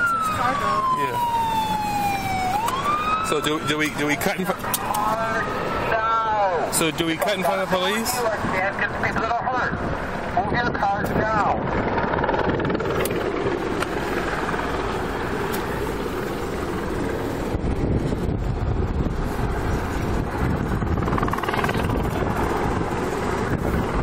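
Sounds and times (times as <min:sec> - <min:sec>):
wind on microphone: 0:07.2 - 0:24.0.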